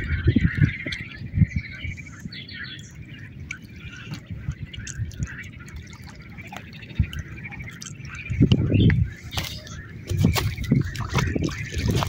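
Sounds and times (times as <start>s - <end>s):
small water splashes: 2.2s - 12.0s
water lapping against pebble shore: 3.4s - 12.0s.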